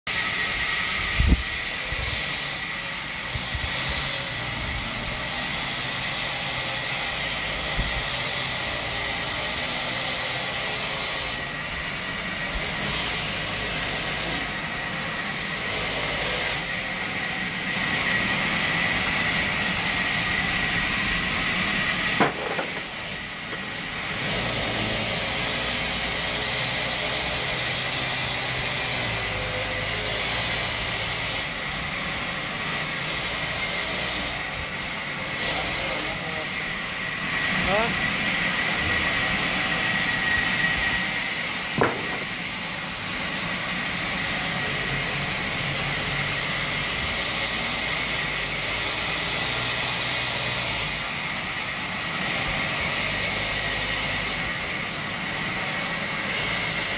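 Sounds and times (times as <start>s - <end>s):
band saw cutting wood: 0.1s - 56.9s.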